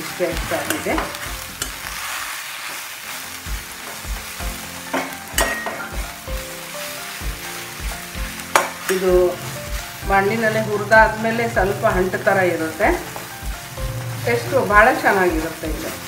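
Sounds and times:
leaves sizzling in a pan: 0.0 - 16.0
soft background music: 0.0 - 16.0
utensil clinking against pan: 4.9 - 5.9.

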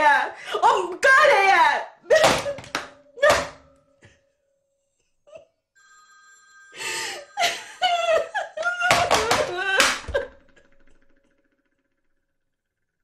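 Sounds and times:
telephone ringing: 5.7 - 9.4.

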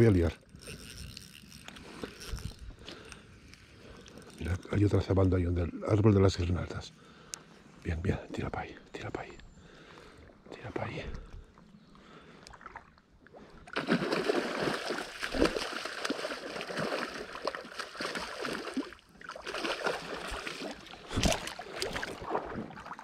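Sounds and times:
water splashing from fish: 13.6 - 23.0.

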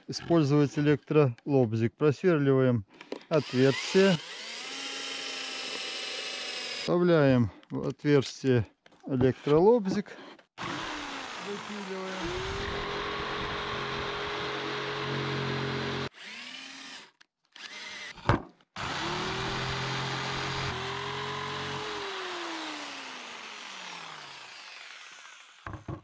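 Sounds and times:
electric jigsaw cutting plywood: 3.3 - 6.9, 10.6 - 26.0.

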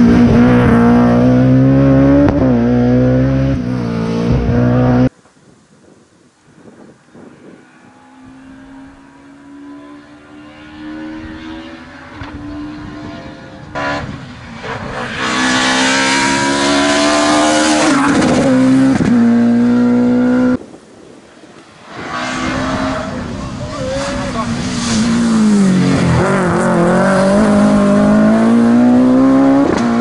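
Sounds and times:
rally car engine accelerating: 0.0 - 5.1, 22.0 - 30.0.

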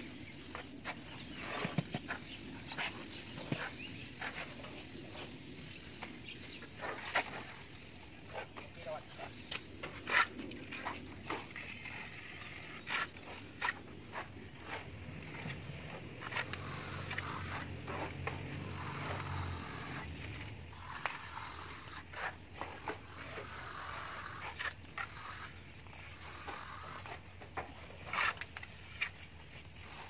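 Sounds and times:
trowels scraping plaster on wall: 16.2 - 27.2.

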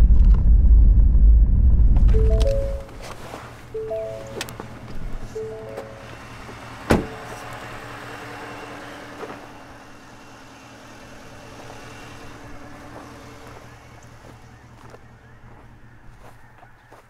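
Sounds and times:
truck engine idling: 2.2 - 17.0
truck door shutting: 5.7 - 7.7.

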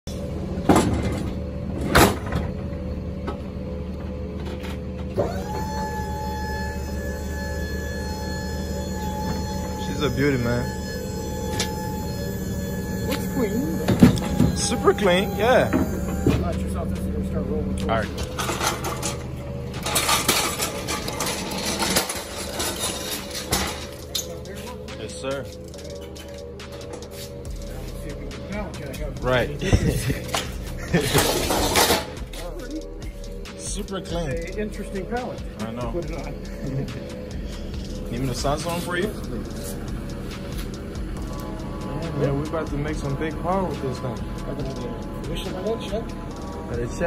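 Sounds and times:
hydraulic pump motor whine: 0.1 - 32.4
liftgate machinery hum: 0.1 - 47.0
pallet jack wheels rattling: 18.2 - 26.4.

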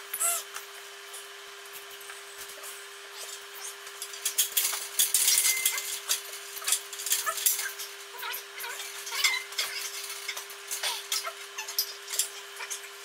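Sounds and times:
hard parts clicking and rattling: 3.9 - 12.9.

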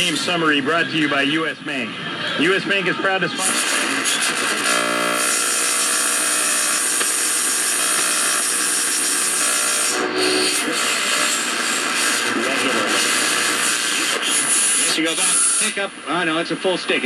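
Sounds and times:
faint radio tones: 0.0 - 6.0, 9.4 - 17.0
radio static and hiss: 0.0 - 17.0.

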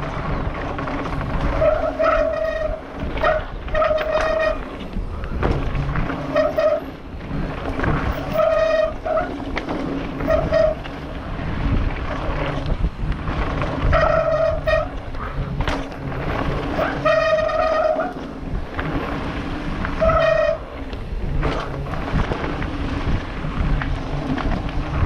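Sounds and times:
bike rattling over stones: 0.0 - 25.0
wind buffeting camera: 0.0 - 25.0
disc brakes squealing: 1.0 - 7.0, 7.8 - 11.1, 13.8 - 22.2.

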